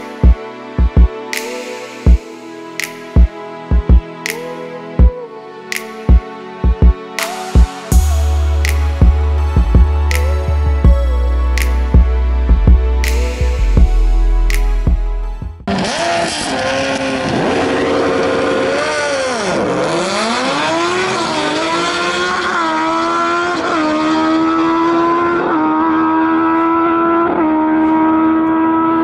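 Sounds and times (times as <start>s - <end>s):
racing motorcycles revving and launching: 15.7s - 29.0s.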